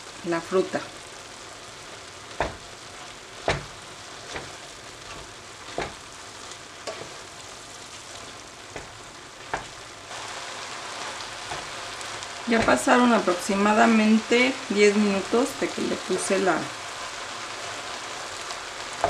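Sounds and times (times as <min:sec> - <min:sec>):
meat sizzling in a frying pan: 0:00.0 - 0:19.0
wooden spoon scraping a pan: 0:06.8 - 0:12.9.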